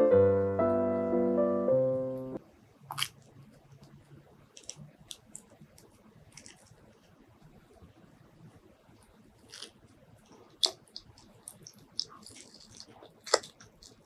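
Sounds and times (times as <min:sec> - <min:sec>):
piano music: 0:00.0 - 0:02.4
faint clicks and crackles: 0:02.8 - 0:14.0
fruit husk cracking open: 0:10.5 - 0:14.0.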